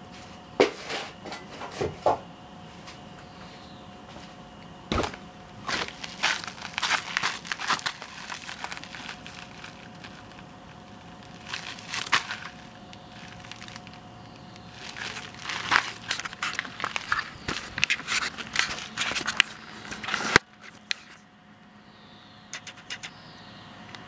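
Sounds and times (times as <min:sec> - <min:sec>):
faint steady hum: 0:00.0 - 0:24.0
footsteps crunching on gravel: 0:02.7 - 0:21.2.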